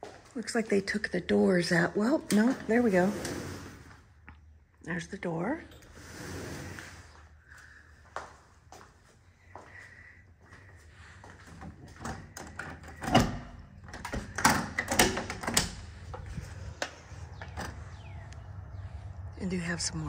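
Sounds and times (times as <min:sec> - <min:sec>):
sliding glass door opening: 0:02.4 - 0:04.0, 0:05.8 - 0:07.2
latch and frame clacking: 0:12.0 - 0:15.8.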